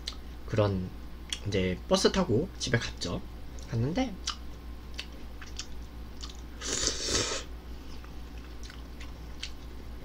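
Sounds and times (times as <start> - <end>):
faint chewing: 3.6 - 6.5, 7.8 - 9.8
small mouth clicks: 3.6 - 6.9.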